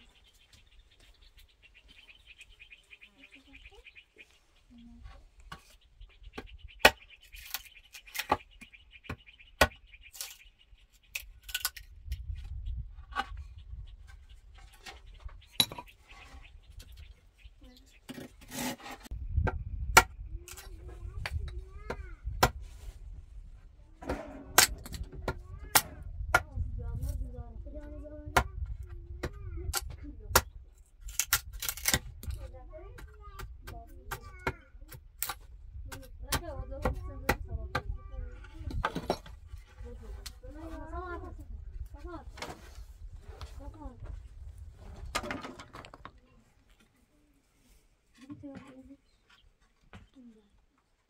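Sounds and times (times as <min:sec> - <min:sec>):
hatchet chopping wood: 0:09.1 - 0:10.3.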